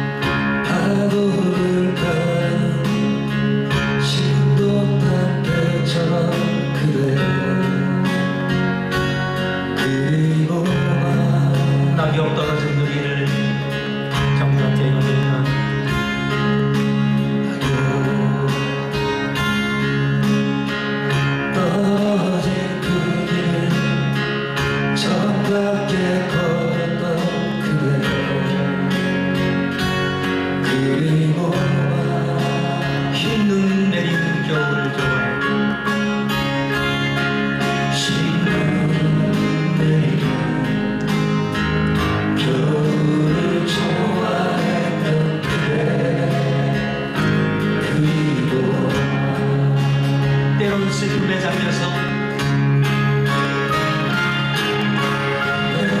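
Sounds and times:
acoustic guitars strummed: 0:00.0 - 0:56.0
man singing into a microphone: 0:00.6 - 0:08.4, 0:09.7 - 0:15.8, 0:17.4 - 0:19.0, 0:21.4 - 0:29.3, 0:30.6 - 0:35.8, 0:37.9 - 0:41.2, 0:42.2 - 0:51.9, 0:55.4 - 0:56.0.

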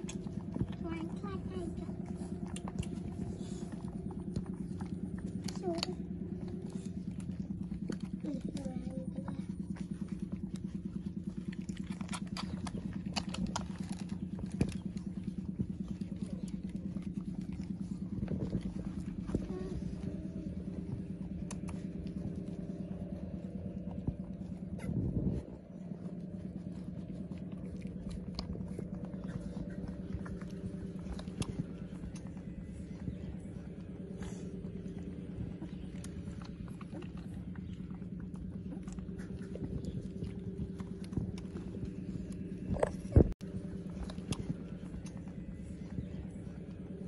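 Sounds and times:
low hum: 0:00.0 - 0:47.0
puppies suckling: 0:00.0 - 0:47.0
small wet clicks and smacks: 0:00.0 - 0:47.0.

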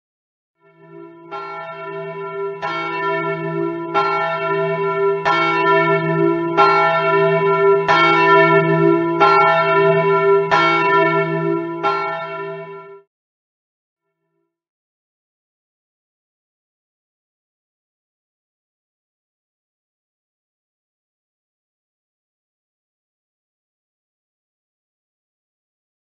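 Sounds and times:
church bell tolling: 0:00.7 - 0:13.1.

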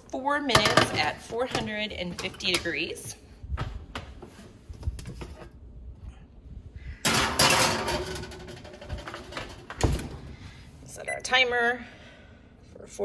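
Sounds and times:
oven door opening: 0:07.1 - 0:10.3.

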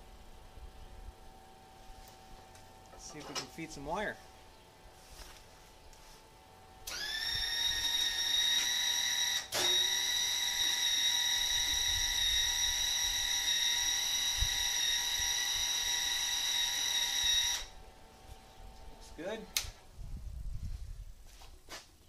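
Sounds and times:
welder wire-feed motor whining: 0:06.7 - 0:19.3.

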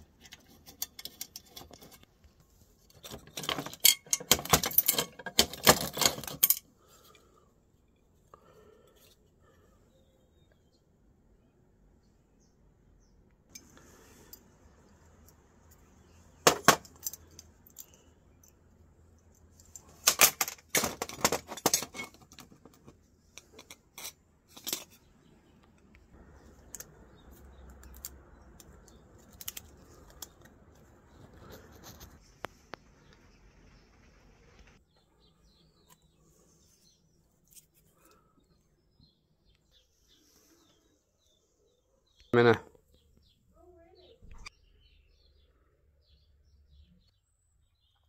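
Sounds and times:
metal screws clinking on concrete: 0:02.9 - 0:07.2, 0:15.2 - 0:18.6.

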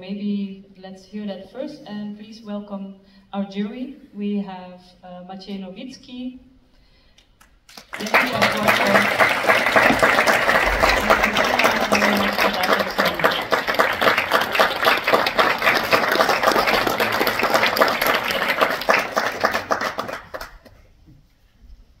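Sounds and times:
audience applauding: 0:07.7 - 0:20.8.

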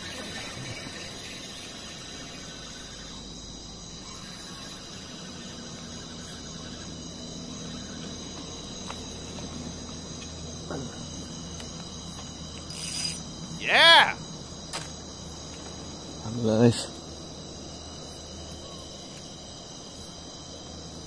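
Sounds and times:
crickets and insects chirring: 0:00.0 - 0:21.0
man exclaiming: 0:13.6 - 0:14.2.

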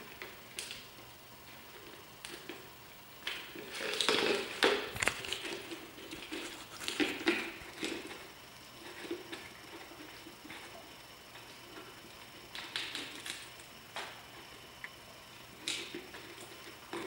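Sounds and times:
puppy licking and gnawing: 0:03.2 - 0:14.2.

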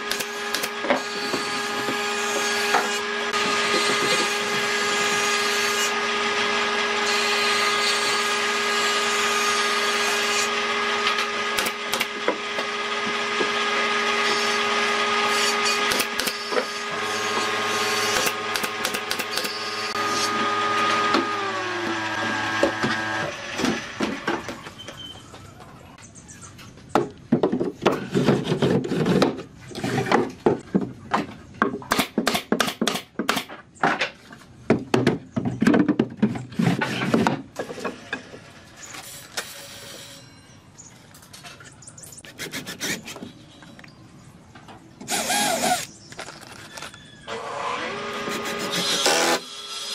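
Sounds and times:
power tool motor running: 0:00.0 - 0:24.3, 0:45.0 - 0:49.9.

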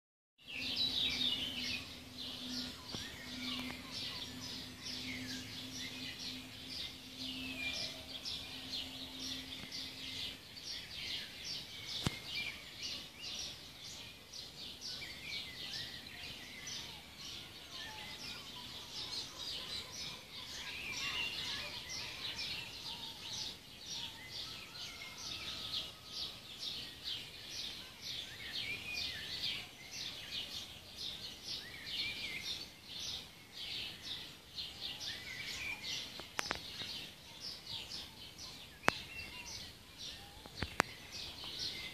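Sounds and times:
birds chirping and twittering: 0:00.4 - 0:41.9.

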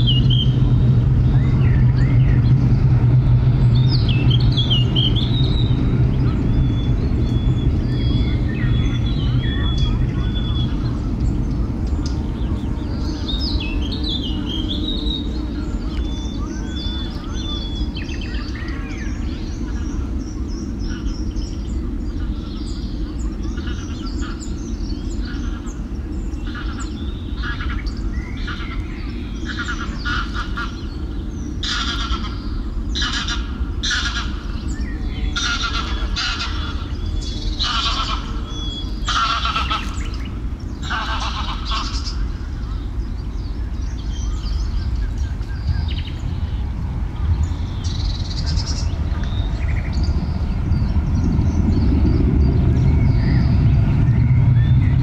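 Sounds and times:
small birds chirping: 0:00.0 - 0:55.0
steady low rumble: 0:00.0 - 0:55.0
geese honking: 0:26.5 - 0:28.8, 0:29.4 - 0:30.9, 0:31.6 - 0:34.6, 0:35.3 - 0:42.4.

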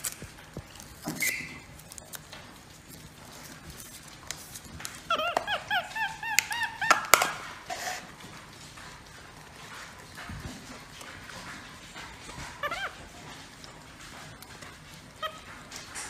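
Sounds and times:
monkey chirping: 0:05.1 - 0:07.4, 0:12.6 - 0:13.0.

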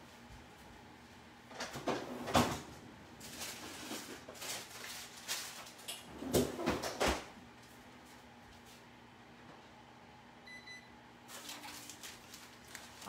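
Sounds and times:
door or drawer opened and shut: 0:01.5 - 0:02.7, 0:06.1 - 0:07.3.

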